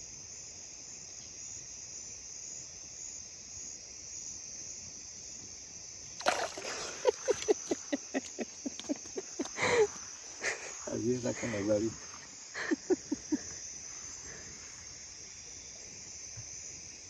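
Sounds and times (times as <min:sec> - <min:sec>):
night insects chirring: 0:00.0 - 0:17.0
water splashing and sloshing: 0:06.1 - 0:08.3.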